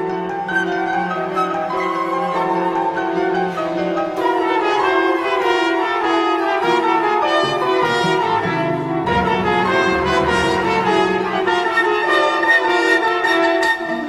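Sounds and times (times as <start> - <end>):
orchestral music with brass: 4.2 - 14.0.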